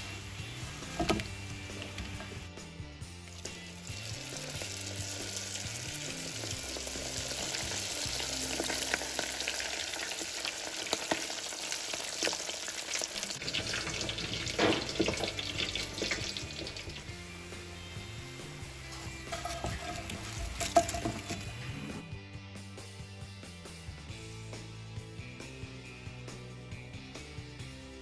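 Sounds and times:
faint background music: 0.0s - 28.0s
deep-frying sizzle with pops: 3.1s - 21.8s.

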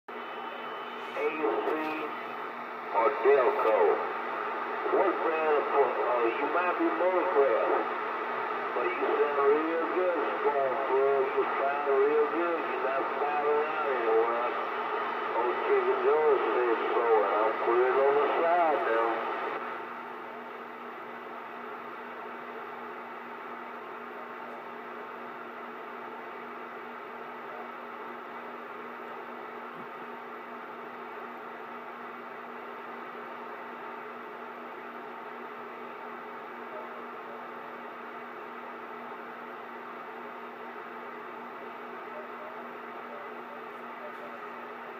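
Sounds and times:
radio static hiss: 0.1s - 20.1s, 33.0s - 44.9s
constant low hum: 0.1s - 44.9s.

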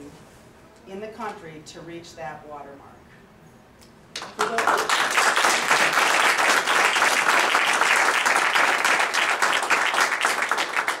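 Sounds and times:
audience applauding: 4.2s - 11.0s.

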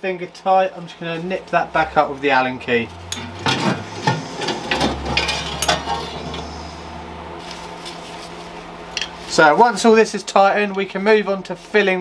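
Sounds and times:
low hum: 1.2s - 9.1s.

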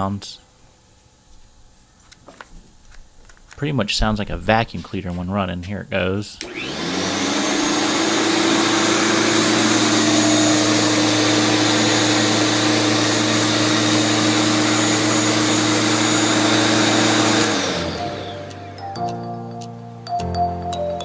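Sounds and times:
electric lawn mower humming and whining: 6.4s - 19.8s.

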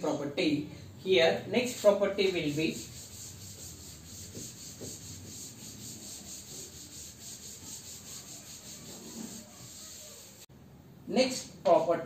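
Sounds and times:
duster rubbing blackboard: 1.8s - 10.5s.

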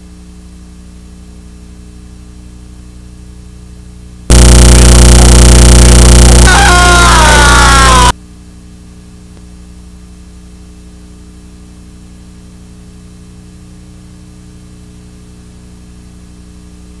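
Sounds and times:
low electrical hum: 0.0s - 17.0s
static hiss: 4.3s - 8.1s.

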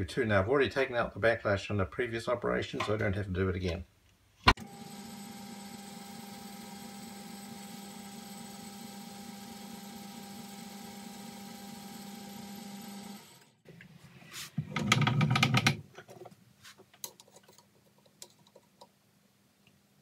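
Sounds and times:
metal lathe running: 4.6s - 13.5s.

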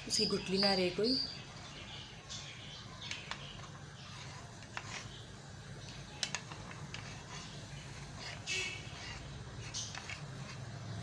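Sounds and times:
metal spoon stirring in bowl: 3.1s - 10.7s.

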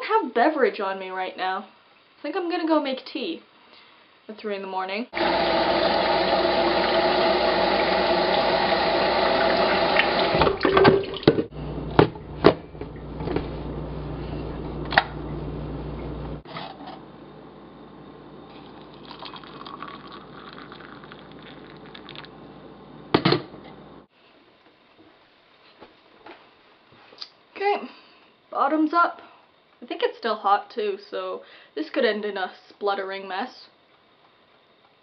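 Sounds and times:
low steady hum: 0.3s - 24.1s
tap water running into kettle: 5.2s - 11.5s, 18.5s - 22.3s
clunks and knocks of kettle: 23.2s - 23.5s.

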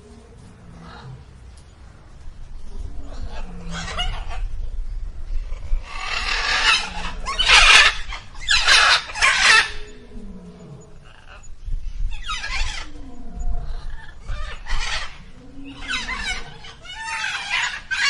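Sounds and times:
peafowl calling: 5.8s - 11.5s, 13.8s - 18.0s.

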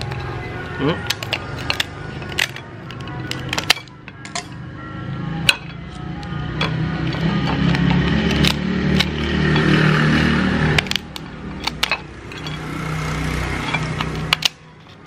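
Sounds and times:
motorbikes passing: 0.0s - 15.0s
scissors snipping crab shell: 7.2s - 9.2s.

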